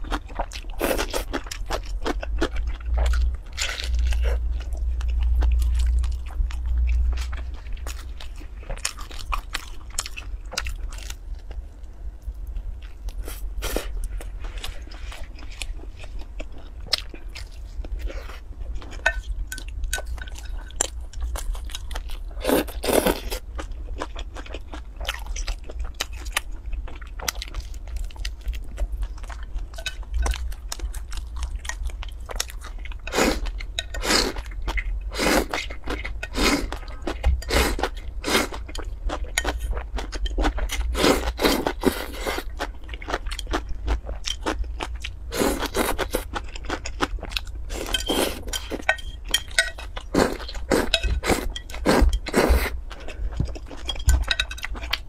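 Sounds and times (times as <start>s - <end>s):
chewing and crunching: 0.0s - 55.0s.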